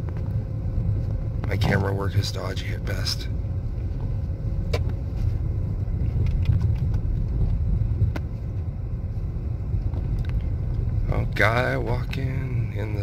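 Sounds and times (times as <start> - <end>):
car engine and tyres rumbling: 0.0 - 13.0.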